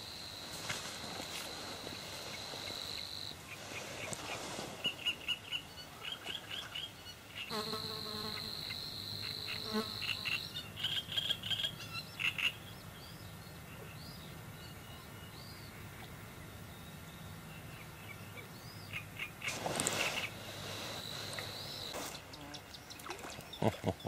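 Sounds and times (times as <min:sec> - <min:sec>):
high-pitched insect buzz: 0:07.5 - 0:10.4.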